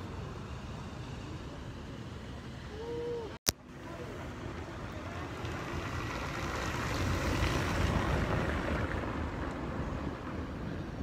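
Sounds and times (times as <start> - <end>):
wind buffeting microphone: 5.8 - 11.0.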